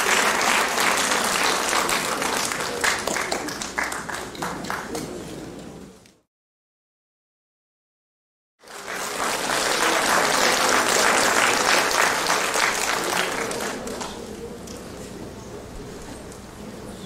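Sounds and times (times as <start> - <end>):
audience applauding: 0.0 - 5.1, 8.6 - 14.4.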